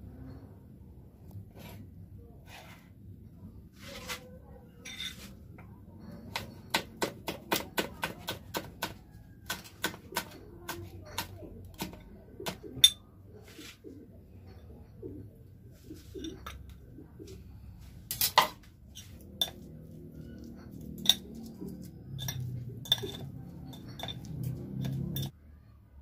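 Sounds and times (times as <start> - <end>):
knife chopping meat on a plate: 6.3 - 12.7.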